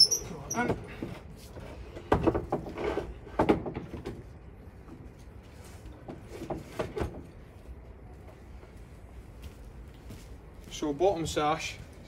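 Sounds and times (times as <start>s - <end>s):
wooden window parts knocking: 2.1s - 4.2s.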